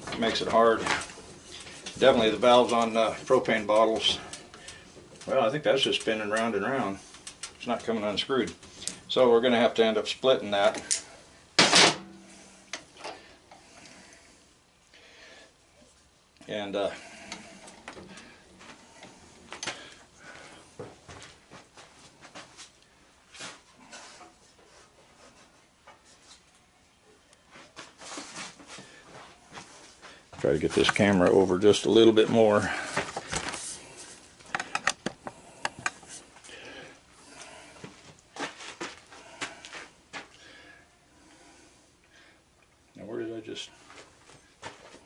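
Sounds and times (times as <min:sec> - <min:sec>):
hand tools and metal parts clicking: 0:34.4 - 0:36.2.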